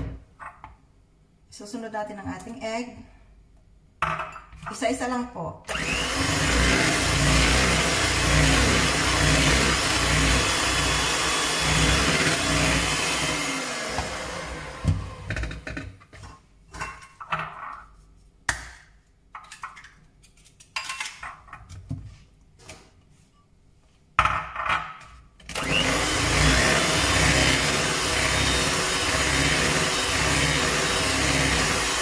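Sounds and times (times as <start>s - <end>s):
electric hand mixer whirring: 5.7s - 15.7s, 25.5s - 32.0s.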